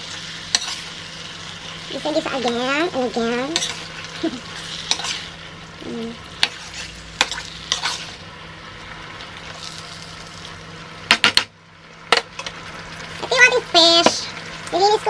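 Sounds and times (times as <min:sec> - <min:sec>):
vegetables sizzling in oil: 0:00.0 - 0:15.0
metal spoon clinking and scraping: 0:03.6 - 0:03.8.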